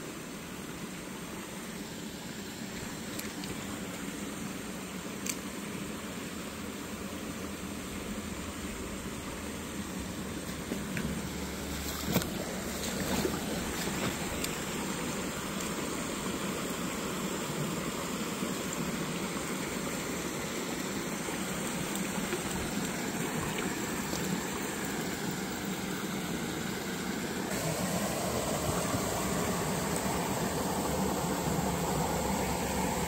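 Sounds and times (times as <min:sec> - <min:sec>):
stream rushing over rocks: 0:09.7 - 0:33.0.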